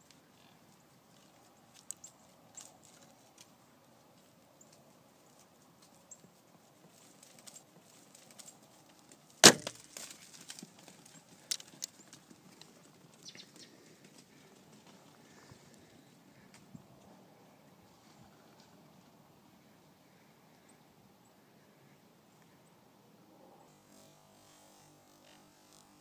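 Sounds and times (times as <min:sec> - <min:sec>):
rustling in dry leaves: 0:01.1 - 0:16.5
loud gunshot: 0:09.4 - 0:09.7.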